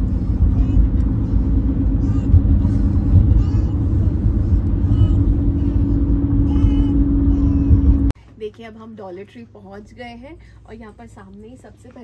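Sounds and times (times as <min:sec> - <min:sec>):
car interior road noise: 0:00.0 - 0:08.1.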